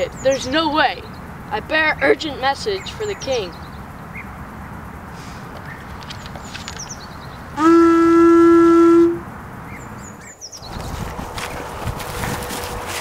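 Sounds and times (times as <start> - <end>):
animal horn blown: 7.6 - 9.3.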